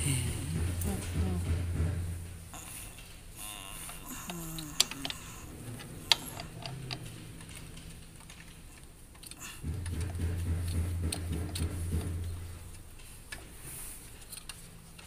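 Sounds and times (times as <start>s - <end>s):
low steady hum: 0.0s - 15.0s
metallic clicks and taps: 4.3s - 13.5s.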